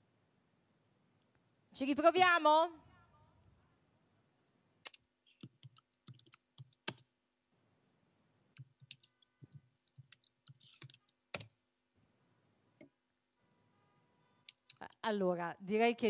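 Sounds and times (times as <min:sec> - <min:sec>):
faint irregular clicks and taps: 0:04.8 - 0:07.1, 0:08.5 - 0:11.6, 0:14.4 - 0:15.0.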